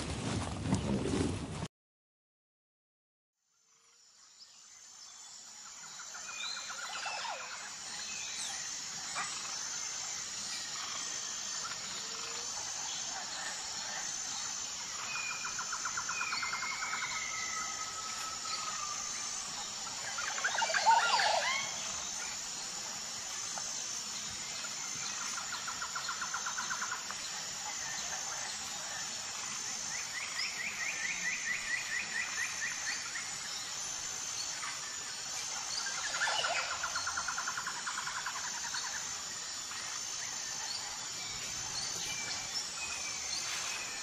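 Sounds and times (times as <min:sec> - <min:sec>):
rapid bird trill: 0:06.0 - 0:27.0
high-pitched pulsing: 0:06.4 - 0:30.8.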